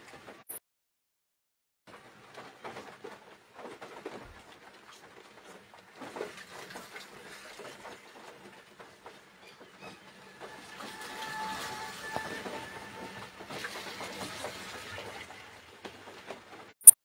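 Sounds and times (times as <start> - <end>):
rain pattering on car roof: 1.9 - 9.8, 13.2 - 16.7.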